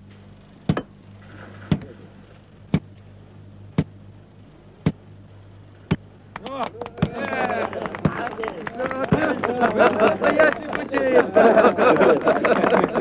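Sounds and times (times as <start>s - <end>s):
low hum: 0.0s - 10.8s
hammer striking rail spike: 0.7s - 0.9s.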